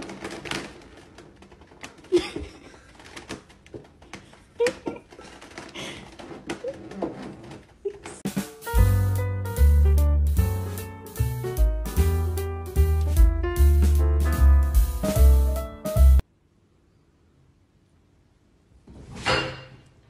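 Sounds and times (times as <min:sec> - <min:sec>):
plastic container crackling: 0:00.0 - 0:08.0.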